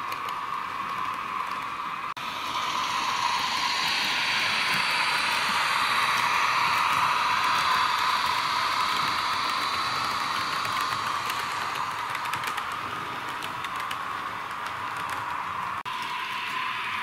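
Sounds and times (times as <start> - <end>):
model locomotive hissing: 2.2 - 17.0
wagon wheels clicking on track: 4.8 - 15.6.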